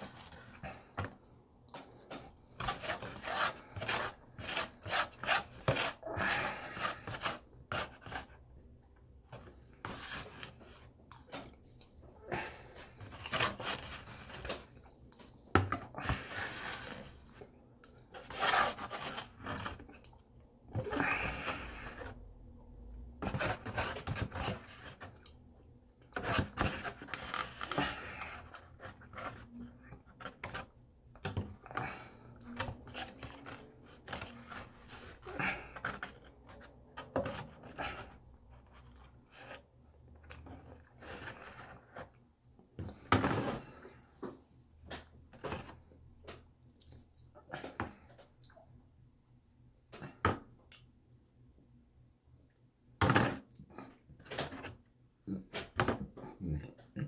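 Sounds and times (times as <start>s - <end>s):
cutlery scraping foam box: 2.1s - 8.4s, 12.4s - 14.7s, 18.1s - 19.8s, 23.2s - 25.1s, 26.2s - 29.3s, 30.1s - 39.6s
person chewing: 46.6s - 47.5s.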